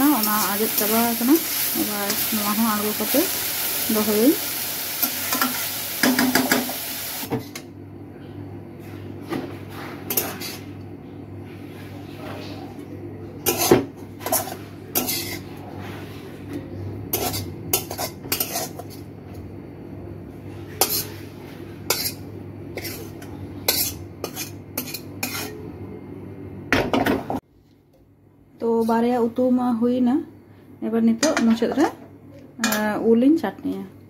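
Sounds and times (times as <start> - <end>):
metal spatula scraping a pan: 13.5 - 15.4, 17.1 - 19.0, 20.8 - 21.2, 21.9 - 22.2, 22.8 - 25.6.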